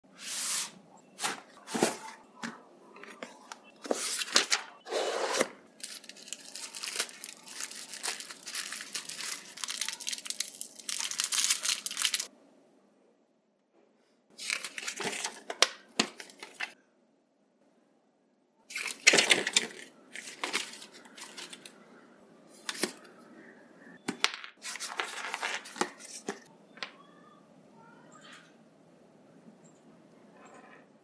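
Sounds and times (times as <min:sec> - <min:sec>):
plastic and paper packaging crinkling: 0:03.0 - 0:12.3, 0:14.4 - 0:16.8, 0:18.7 - 0:21.8, 0:22.6 - 0:23.0, 0:24.6 - 0:26.5.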